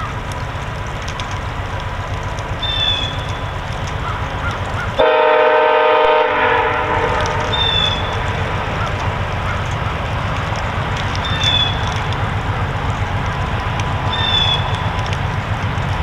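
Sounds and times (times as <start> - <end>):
diesel locomotive rumbling: 0.0 - 16.0
train air horn blast: 5.0 - 8.2.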